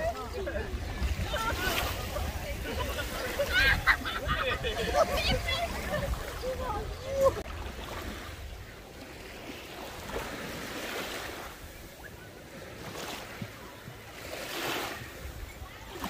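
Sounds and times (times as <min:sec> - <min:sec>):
ocean surf washing in: 0:00.0 - 0:12.0.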